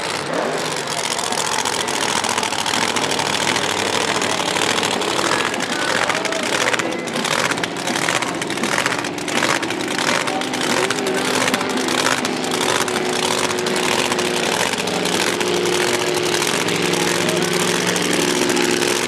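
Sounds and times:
drag racing engines: 0.0 - 19.0.

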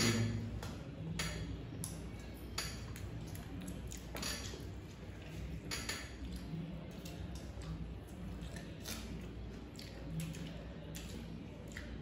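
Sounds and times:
low steady hum: 0.0 - 12.0
chewing and mouth sounds: 1.7 - 12.0
light clinks against plates: 4.1 - 4.7, 5.6 - 6.3.

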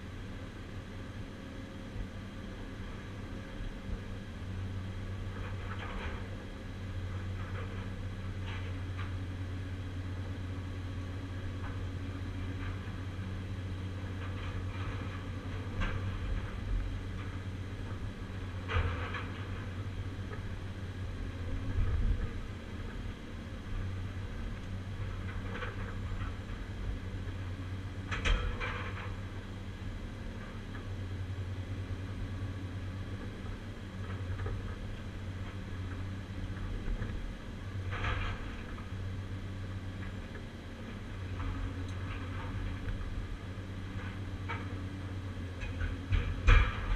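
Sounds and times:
demolition shear knocks and cracks: 45.6 - 46.9.

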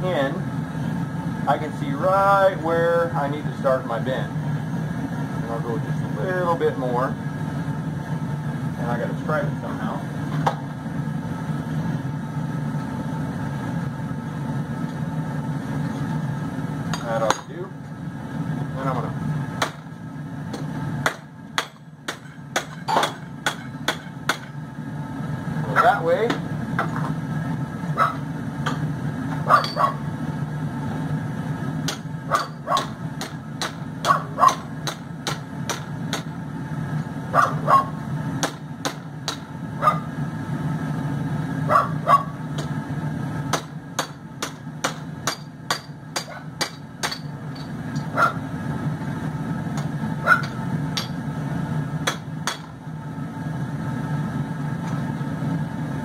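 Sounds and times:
hammer striking steel on anvil: 16.9 - 17.6, 20.5 - 24.6, 29.6 - 29.9, 31.8 - 36.4, 38.4 - 39.5, 43.5 - 48.2, 49.8 - 51.2, 52.0 - 52.8.

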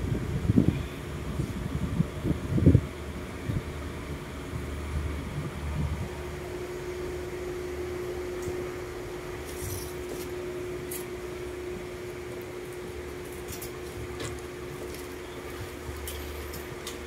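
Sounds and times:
room hum: 0.0 - 17.0.

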